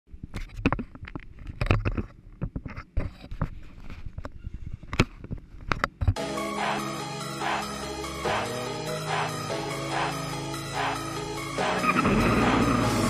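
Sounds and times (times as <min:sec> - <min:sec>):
music: 0:06.2 - 0:13.0.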